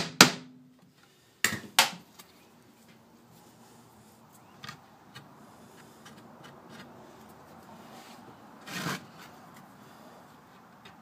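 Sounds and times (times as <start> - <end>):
wooden board scraping: 8.0 - 9.4.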